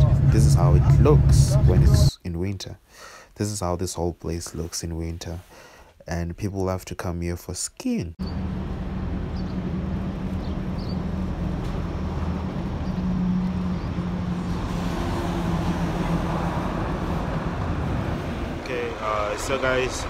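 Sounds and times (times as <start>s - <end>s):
large vehicle engine idling: 0.0s - 2.1s
higher engine tone: 8.2s - 20.0s.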